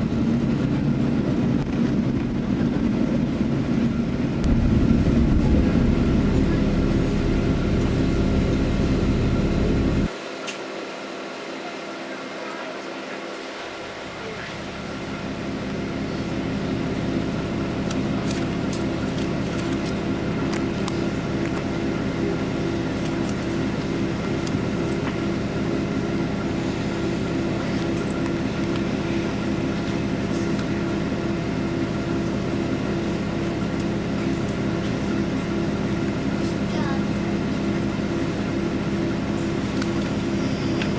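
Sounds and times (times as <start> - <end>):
vehicle engine running: 4.4 - 10.1.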